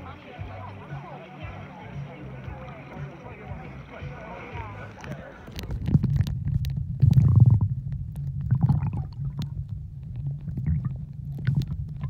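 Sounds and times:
muffled underwater water rumble: 0.0s - 12.0s
sharp clicks and crackles: 4.8s - 12.0s.

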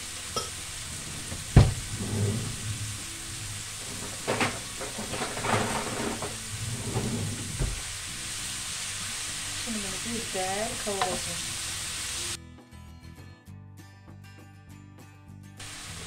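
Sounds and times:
leeks sizzling in a pan: 0.0s - 12.4s, 15.6s - 16.0s.

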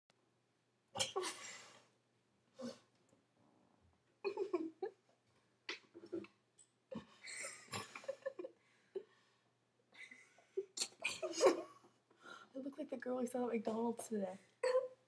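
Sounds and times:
girls giggling: 4.2s - 5.0s, 6.9s - 9.1s, 10.0s - 11.9s.

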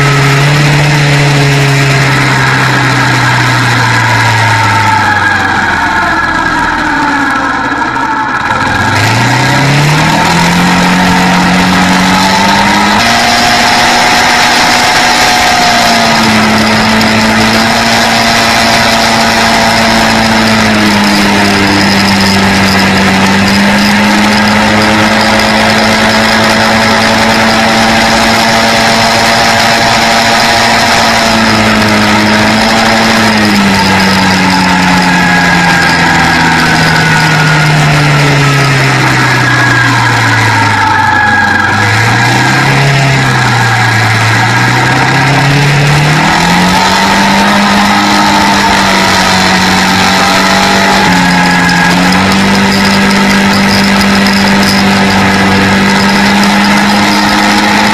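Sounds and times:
quad bike engine: 0.0s - 57.9s
wind and road noise: 0.0s - 57.9s.

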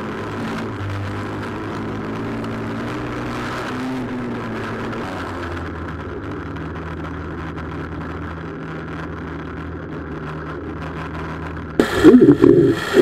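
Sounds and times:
noisy wind rush: 11.4s - 13.0s
sudden loud sound: 11.8s - 13.0s.

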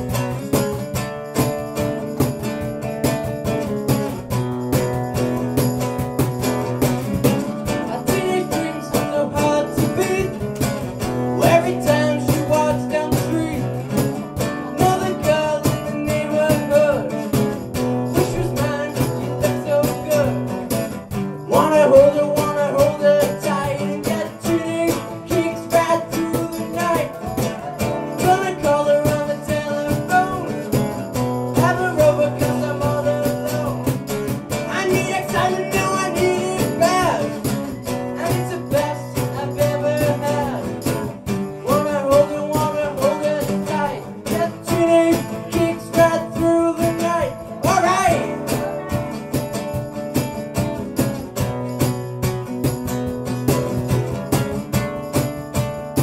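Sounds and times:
acoustic guitar strumming: 0.0s - 56.0s
man singing into a microphone: 7.7s - 49.4s.

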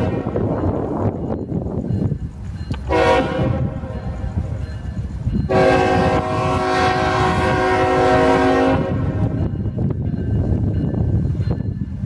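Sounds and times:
train air horn: 0.0s - 0.4s, 2.9s - 4.0s, 5.5s - 9.4s
low locomotive rumble: 0.0s - 12.0s.

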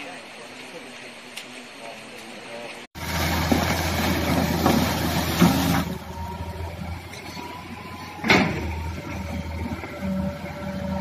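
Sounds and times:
excavator diesel engine humming: 2.7s - 11.0s
bucket working mud and rock: 3.0s - 11.0s.

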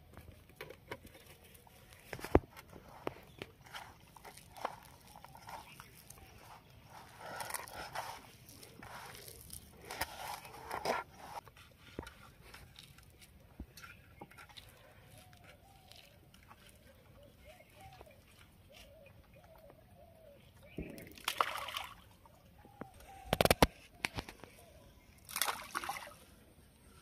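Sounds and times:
rice rustling in steel plate: 2.8s - 17.0s.

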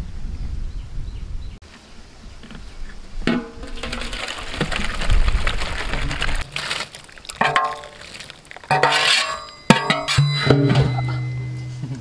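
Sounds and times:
water pouring and splashing into basin: 3.6s - 9.4s.

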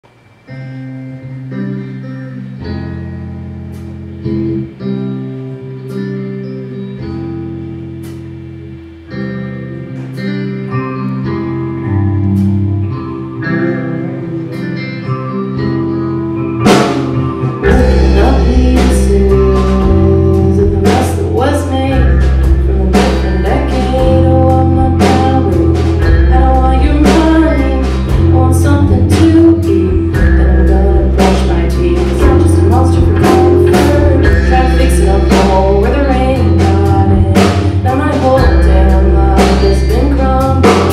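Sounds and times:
live rock band: 0.1s - 40.9s.

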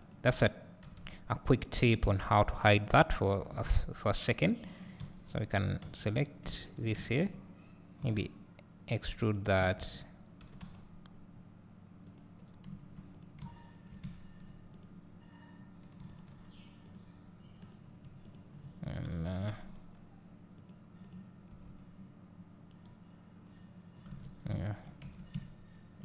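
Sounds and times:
steady low hum: 0.0s - 26.0s
keyboard and mouse clicks: 15.8s - 20.0s.

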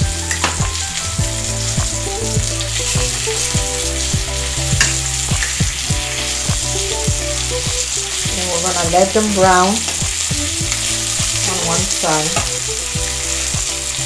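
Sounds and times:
chicken sizzling in a pan: 0.0s - 14.0s.

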